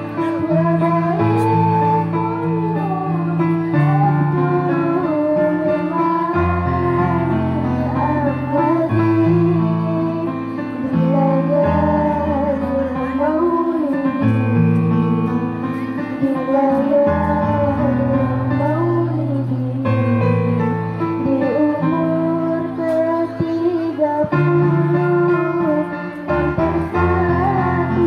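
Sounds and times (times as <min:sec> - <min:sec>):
electronic keyboard chords: 0:00.0 - 0:28.0
woman singing: 0:00.0 - 0:28.0.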